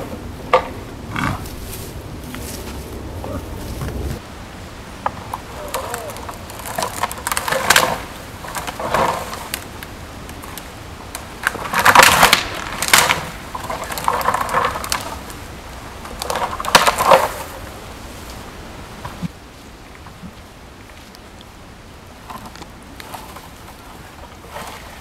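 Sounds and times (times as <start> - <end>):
branches cracking: 0.0 - 21.6, 22.2 - 25.0
needles rustling: 1.0 - 4.3.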